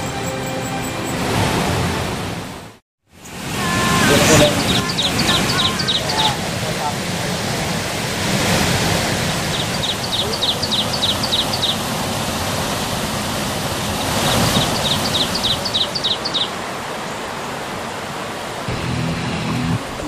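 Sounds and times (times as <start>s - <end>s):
water rushing over rocks: 3.3s - 20.0s
small animal calling: 3.6s - 6.4s.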